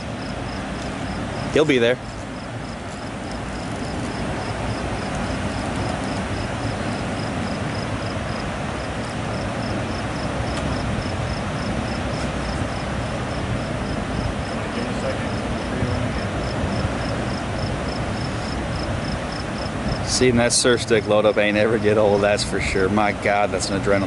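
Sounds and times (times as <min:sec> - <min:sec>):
insect chirping: 0:00.0 - 0:21.4
water rushing through spillway: 0:00.0 - 0:24.0.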